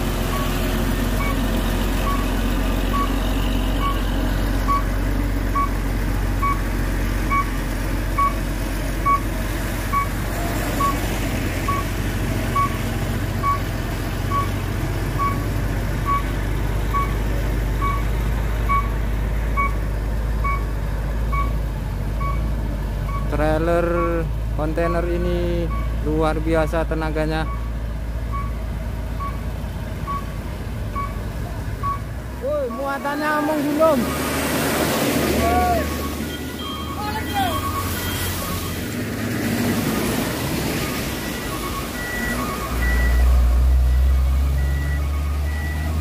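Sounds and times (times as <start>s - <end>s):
diesel truck engine drone: 0.0s - 46.0s
electronic warning beeper: 31.8s - 34.6s, 35.4s - 38.8s.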